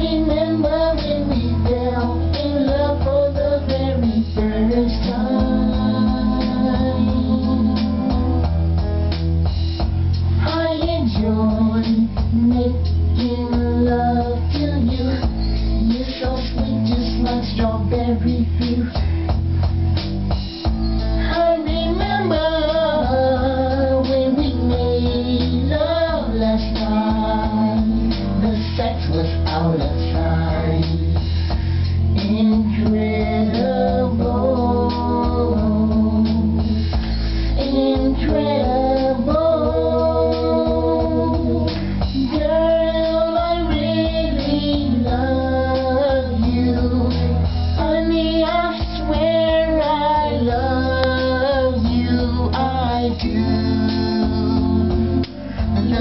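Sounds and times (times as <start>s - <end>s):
person singing pop song: 0.0s - 9.0s, 10.3s - 19.4s, 21.0s - 56.0s
backing track with strong bass: 0.0s - 56.0s.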